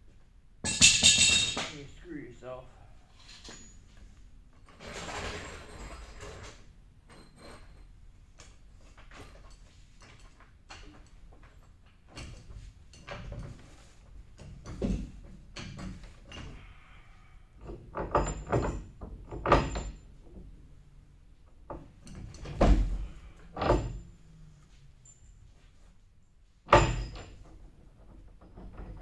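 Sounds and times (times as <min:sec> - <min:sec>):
tools clanking against steel housing: 0:26.7 - 0:29.0.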